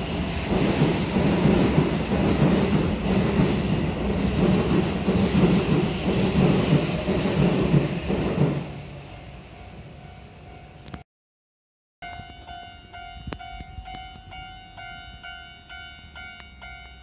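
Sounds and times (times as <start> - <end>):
train wheels running over rails: 0.0 - 9.0.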